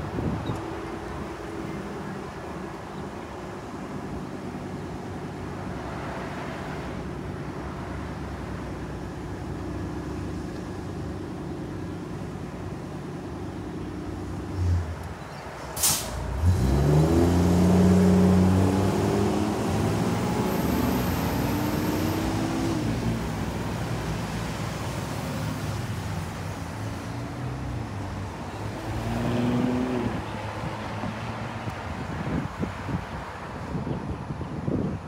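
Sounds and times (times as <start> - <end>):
bus engine idling and revving: 0.0 - 34.9
short sharp hiss: 15.8 - 16.3.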